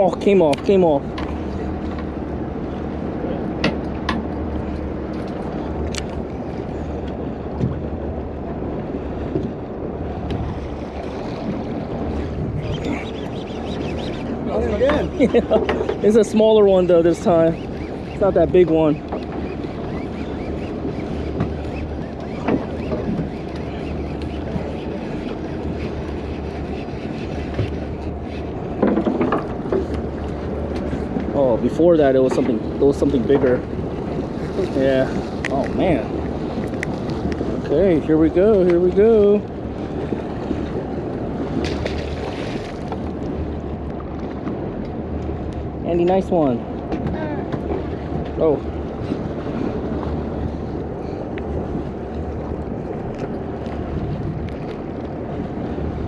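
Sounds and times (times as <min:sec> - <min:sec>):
boat rumble: 0:00.0 - 0:56.0
water noise: 0:00.0 - 0:56.0
wind: 0:00.0 - 0:56.0.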